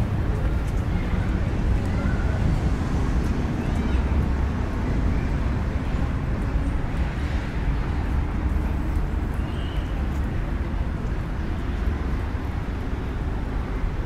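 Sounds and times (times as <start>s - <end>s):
low outdoor rumble: 0.0s - 14.0s.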